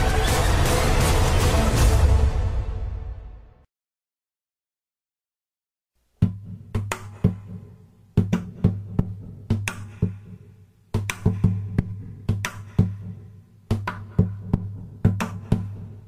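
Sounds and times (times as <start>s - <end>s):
music with drum beat and heavy bass: 0.0s - 2.4s.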